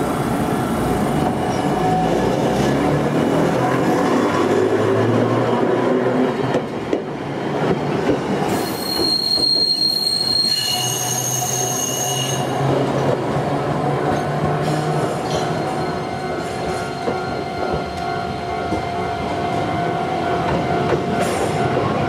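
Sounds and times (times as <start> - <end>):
tram rumbling on rails: 0.0 - 22.0
wheels squealing on rails: 8.4 - 13.1, 14.5 - 18.4.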